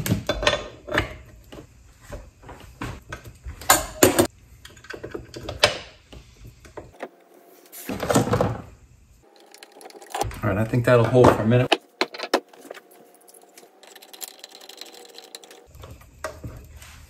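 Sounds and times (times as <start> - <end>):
steel parts clicking and knocking: 9.3 - 10.4, 11.7 - 16.3
metal wrench clattering: 11.7 - 15.7.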